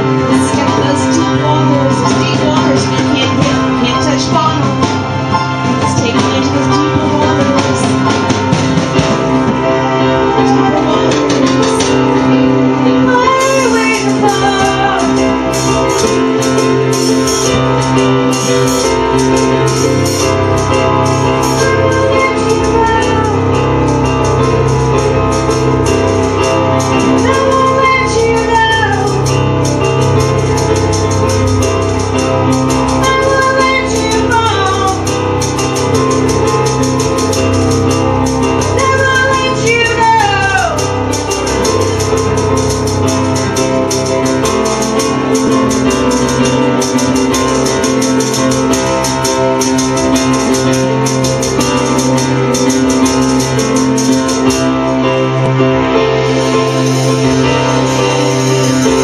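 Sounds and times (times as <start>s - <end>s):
keyboard: 0.0s - 59.0s
woman singing: 0.2s - 4.8s, 5.7s - 8.0s, 10.2s - 15.5s, 21.6s - 23.5s, 27.2s - 29.3s, 33.0s - 35.0s, 38.8s - 40.8s
hand drums: 13.1s - 55.6s, 56.2s - 59.0s.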